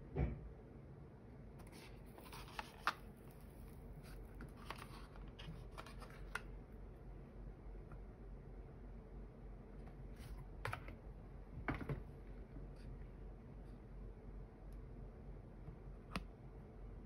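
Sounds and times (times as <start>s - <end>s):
packaging handling clicks and rustles: 2.0s - 6.5s.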